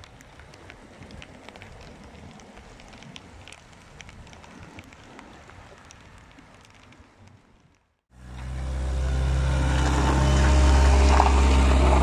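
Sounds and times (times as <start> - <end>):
raindrops ticking: 0.0 - 7.9
rain low rumble: 0.0 - 12.0.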